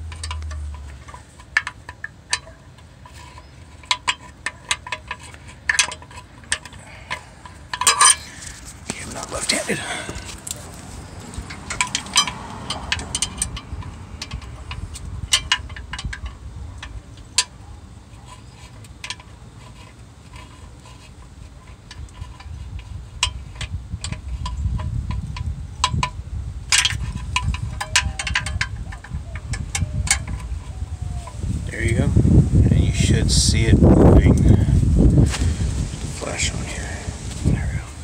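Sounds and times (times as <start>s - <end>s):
low handling rumble: 0.0s - 3.8s, 6.3s - 17.8s, 22.0s - 38.0s
metallic clinks and taps: 11.3s - 17.5s.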